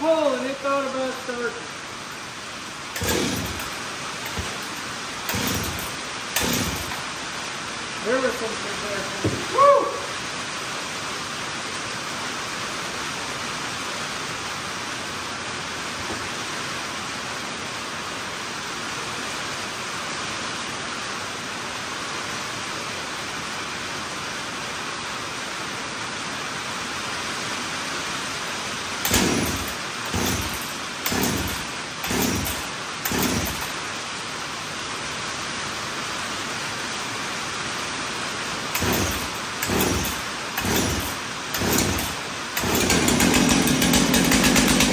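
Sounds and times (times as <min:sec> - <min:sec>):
rain on a tin roof: 0:00.0 - 0:44.9
chainsaw recoil starter pulls: 0:02.9 - 0:07.1, 0:29.0 - 0:33.8, 0:38.7 - 0:44.9.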